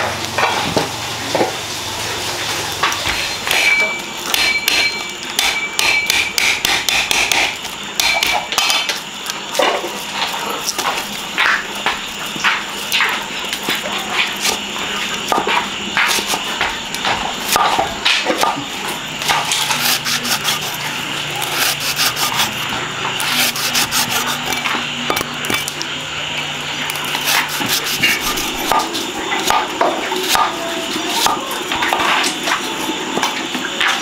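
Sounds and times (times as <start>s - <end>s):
cleaver chopping on wooden block: 3.5s - 8.9s, 19.2s - 20.8s, 21.4s - 22.6s, 23.2s - 25.2s, 27.0s - 30.5s.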